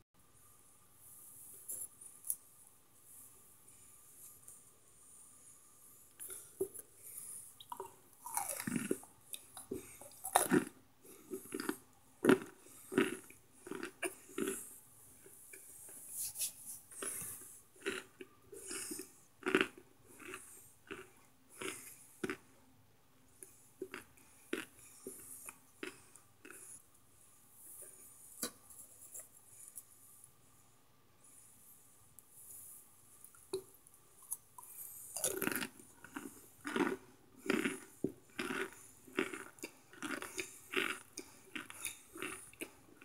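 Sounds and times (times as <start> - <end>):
chewing and crunching: 6.1 - 16.0, 16.9 - 22.4, 33.2 - 43.0.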